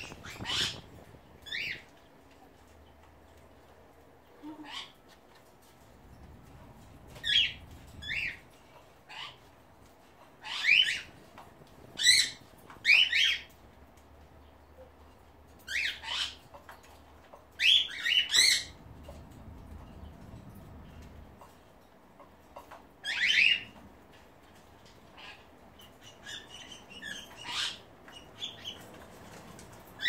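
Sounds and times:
cockatiels chirping: 0.0 - 1.9, 7.0 - 8.4, 10.4 - 11.2, 12.0 - 13.5, 15.7 - 16.5, 17.6 - 19.2, 22.6 - 23.8, 25.1 - 29.7.

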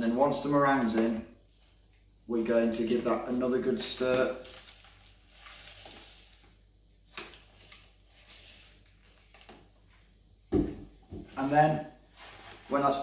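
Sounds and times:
crumbly meringue rustle: 4.0 - 6.6.

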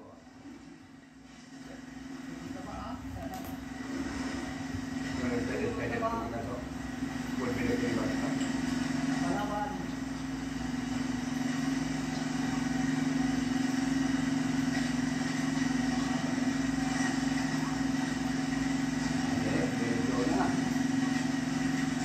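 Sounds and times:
engine drone through tv speaker: 0.0 - 22.0.

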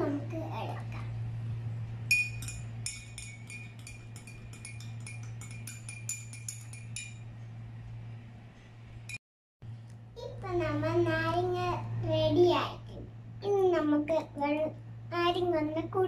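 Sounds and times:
steady low hum: 0.0 - 16.0
spoon clinking in glass: 2.1 - 7.3.

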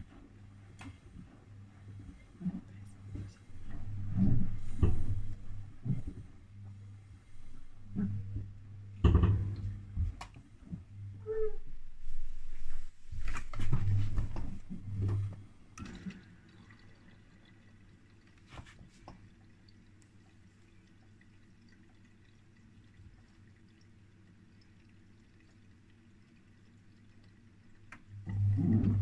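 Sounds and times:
low steady hum: 0.0 - 29.0
water dripping and trickling: 13.1 - 29.0.

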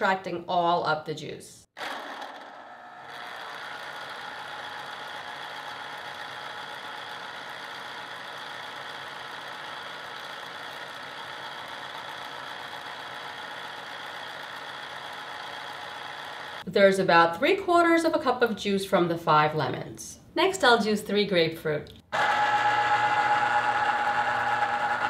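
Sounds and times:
citrus juicer motor spinning: 1.8 - 16.7, 22.1 - 25.0.

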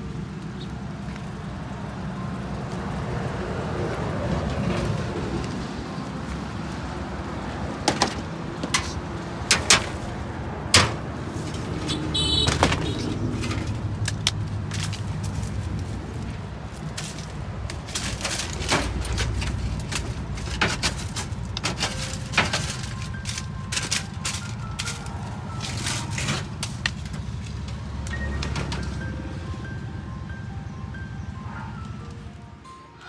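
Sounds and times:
boards and metal sheets clattering: 7.8 - 15.1, 16.9 - 29.1.

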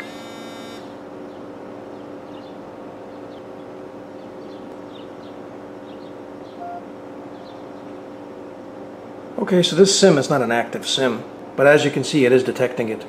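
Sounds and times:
low hum and hiss: 0.0 - 13.0
faint high chirps: 6.5 - 7.9
short beep: 6.6 - 6.9
smartwatch startup chime: 6.6 - 6.9.

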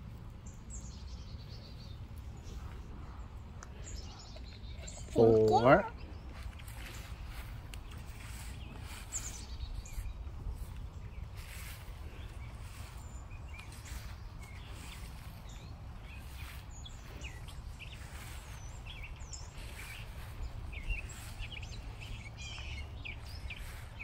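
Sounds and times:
steady low rumble: 0.0 - 5.2, 5.9 - 24.0
songbirds chirping: 0.0 - 24.0
footsteps through grass: 5.6 - 24.0.

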